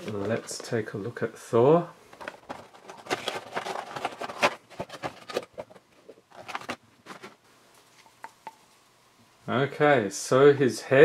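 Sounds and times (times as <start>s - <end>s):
cardboard box and plastic rustling: 0.0s - 0.8s, 2.1s - 7.4s.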